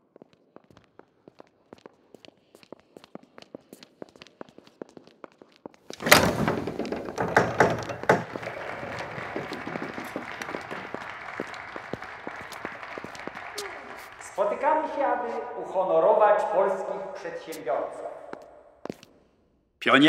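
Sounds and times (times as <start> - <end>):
footsteps clicking: 0.1 - 14.4, 18.3 - 19.2
door banging open: 6.0 - 11.5
knocks: 6.0 - 11.6
crowd noise in a hall: 7.8 - 15.6.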